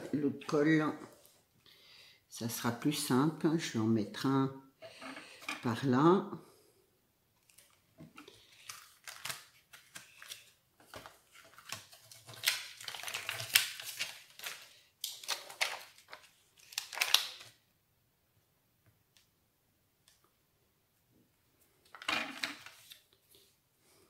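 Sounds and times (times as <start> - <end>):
paper and card rustling: 7.4 - 17.6, 21.9 - 23.2.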